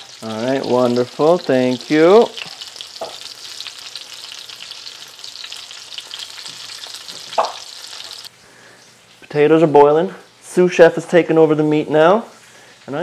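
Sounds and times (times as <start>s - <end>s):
chicken sizzling in a pan: 0.0s - 8.3s.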